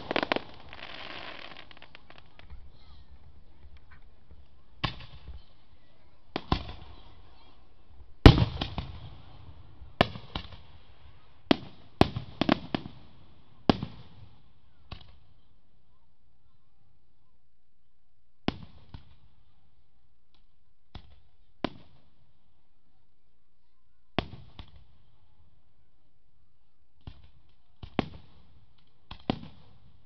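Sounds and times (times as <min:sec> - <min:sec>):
fireworks bangs with echo: 0:00.0 - 0:02.4, 0:04.8 - 0:05.5, 0:06.3 - 0:07.4, 0:08.2 - 0:15.2, 0:29.1 - 0:29.8.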